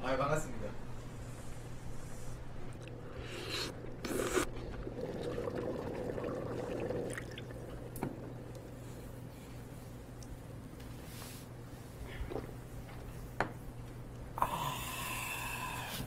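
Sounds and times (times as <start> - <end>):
liquid pouring and splashing: 4.6 - 8.5.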